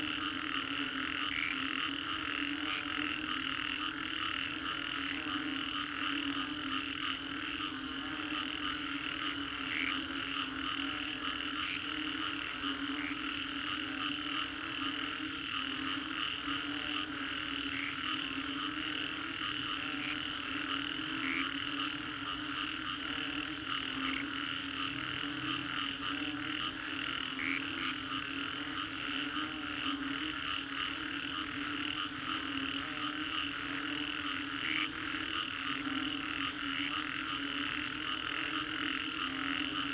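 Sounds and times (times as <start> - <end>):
chorus of frogs calling: 0.0 - 39.9.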